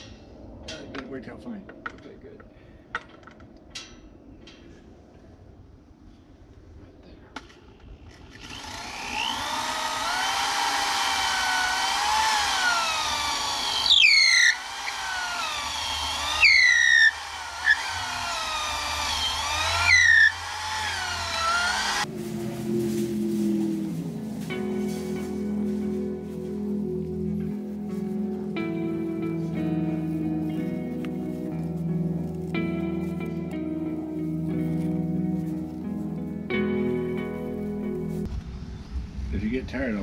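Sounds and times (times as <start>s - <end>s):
power drill boring into wood: 8.3s - 22.1s.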